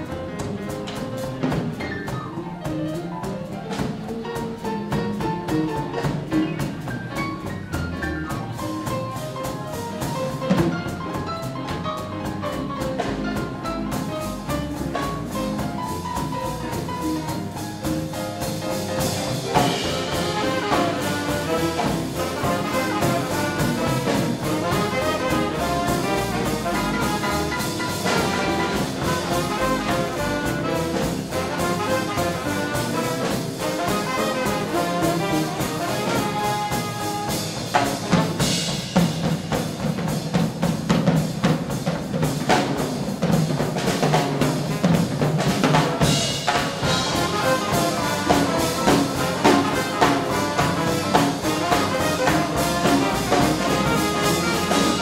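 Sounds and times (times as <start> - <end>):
drums: 0.0 - 55.0
piano: 0.0 - 55.0
upright bass: 0.0 - 55.0
trombone: 8.6 - 39.2, 43.8 - 55.0
trumpet: 19.0 - 38.6, 46.5 - 55.0.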